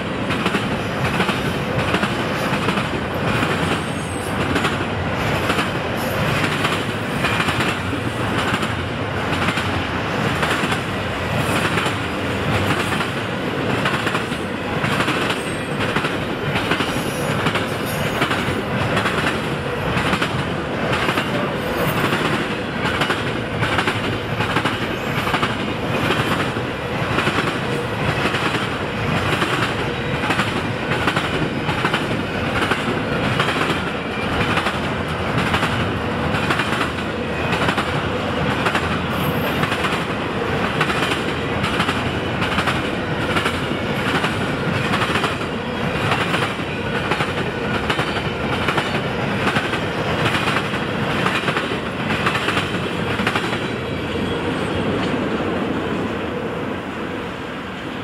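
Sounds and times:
freight train rolling: 0:00.0 - 0:58.0.

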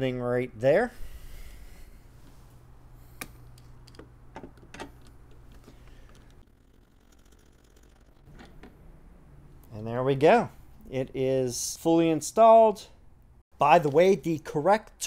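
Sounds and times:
steady low hum: 0:00.0 - 0:12.2.

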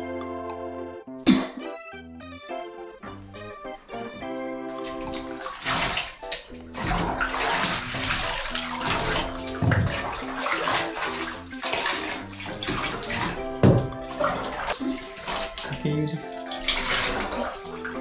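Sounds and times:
background music: 0:00.0 - 0:18.0
water pouring and splashing: 0:03.9 - 0:18.0.

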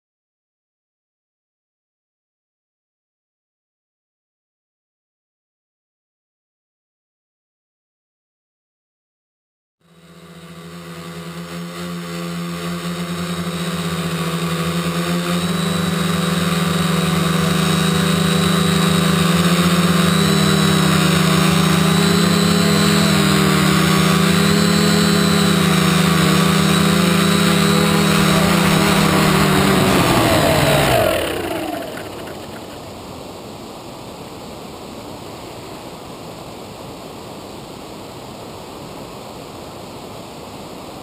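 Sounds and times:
quadcopter motors buzzing: 0:09.8 - 0:33.4.

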